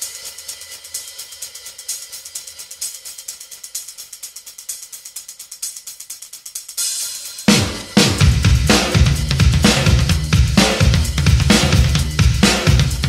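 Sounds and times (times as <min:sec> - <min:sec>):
hi-hat and cymbal pattern: 0:00.0 - 0:13.0
rock band playing: 0:07.5 - 0:13.0.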